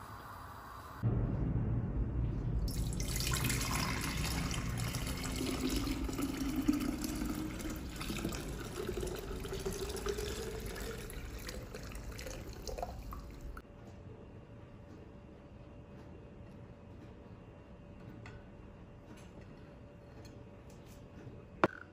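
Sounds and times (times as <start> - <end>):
broth pouring into a pitcher: 2.7 - 13.6.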